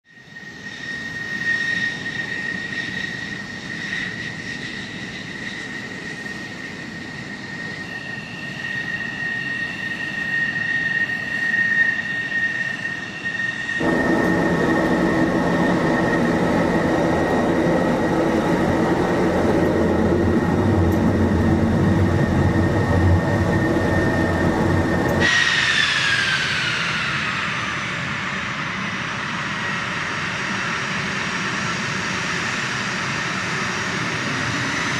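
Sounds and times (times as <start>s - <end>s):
jet engine high whine: 0.1s - 34.9s
deep jet engine roar: 0.2s - 34.9s
turbofan whine falling in pitch: 13.8s - 28.5s.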